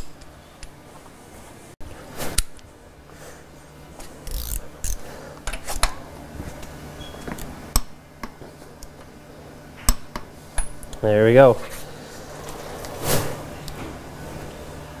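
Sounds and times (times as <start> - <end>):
torque wrench metal clicks: 4.2 - 5.9.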